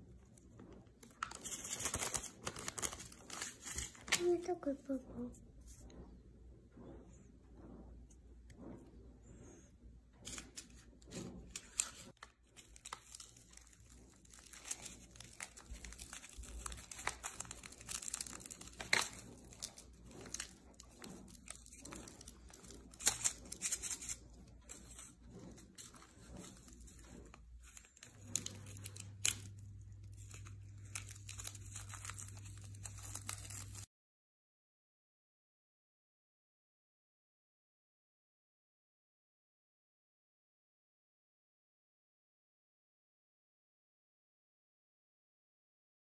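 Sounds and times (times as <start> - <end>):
foil sachets tearing and crinkling: 1.0 - 4.5, 11.5 - 33.9.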